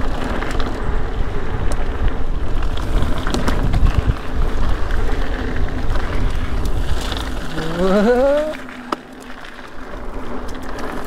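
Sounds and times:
wind over microphone: 0.0s - 8.7s
bike tyres rumbling on dirt: 0.0s - 11.0s.

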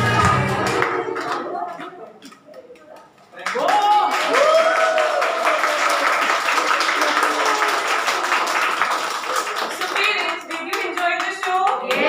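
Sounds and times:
audience clapping: 0.0s - 12.0s
voices: 9.8s - 12.0s.

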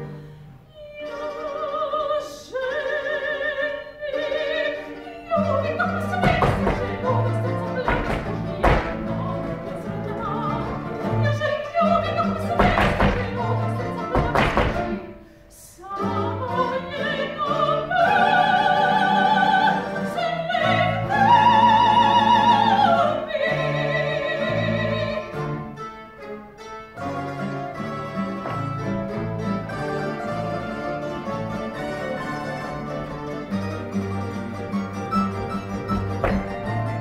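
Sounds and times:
string band playing: 0.0s - 37.0s
woman singing with vibrato: 0.7s - 25.6s.

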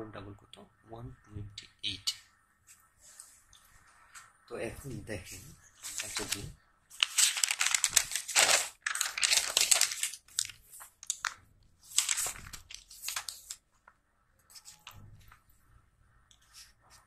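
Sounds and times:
notebook pages turning: 5.8s - 13.6s, 14.5s - 15.5s
faint paper handling: 5.8s - 15.6s.

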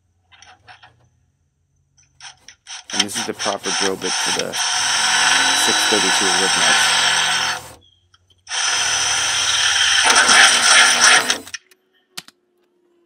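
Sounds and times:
cordless drill drilling metal: 2.2s - 7.8s, 8.5s - 11.6s.

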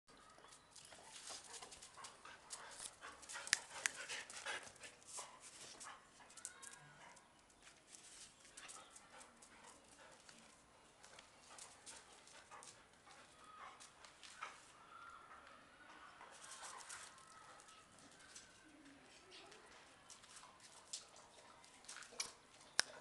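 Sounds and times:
dog claws clicking on concrete: 2.5s - 4.1s.

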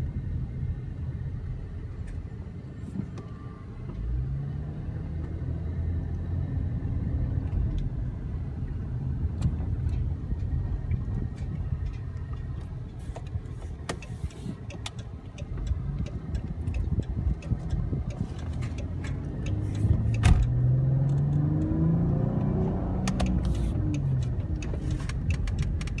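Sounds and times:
car engine accelerating: 0.0s - 26.0s
road noise: 0.0s - 26.0s.

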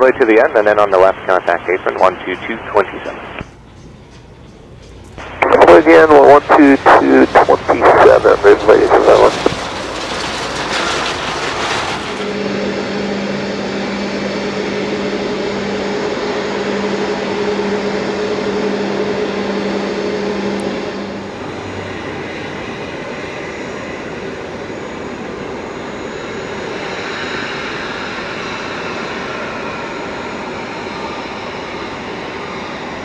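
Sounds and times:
rumble and hiss: 0.0s - 3.6s, 4.9s - 11.1s
machine drone with low hum: 0.0s - 33.0s.

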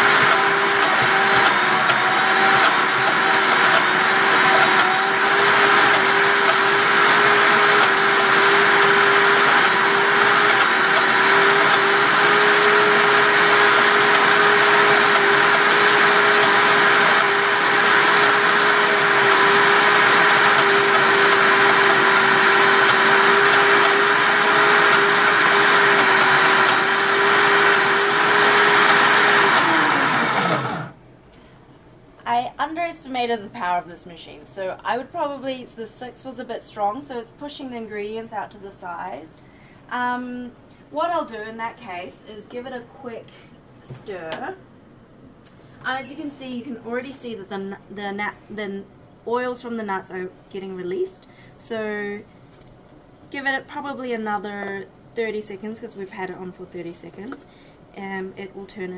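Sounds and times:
blender motor spinning down: 0.0s - 31.0s
blender motor whine: 0.0s - 31.0s.

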